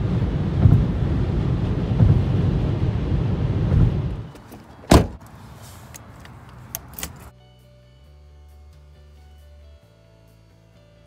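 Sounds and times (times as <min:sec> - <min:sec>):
car road and wind noise: 0:00.0 - 0:07.3
lock clunk: 0:04.3 - 0:05.2, 0:06.2 - 0:07.3.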